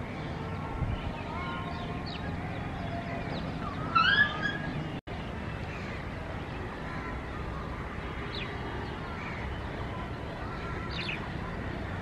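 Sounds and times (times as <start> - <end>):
birds chirping and calling: 0.0 - 12.0
city background hum: 0.0 - 12.0.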